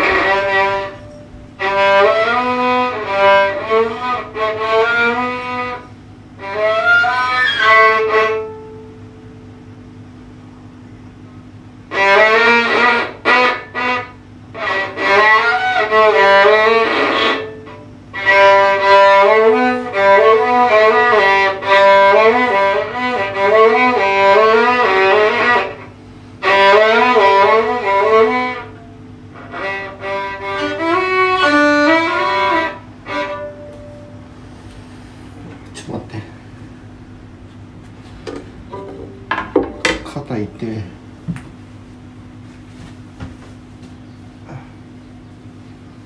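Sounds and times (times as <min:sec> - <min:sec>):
solo violin melody: 0:00.0 - 0:08.8, 0:11.9 - 0:34.3
faint steady hum: 0:00.0 - 0:46.0.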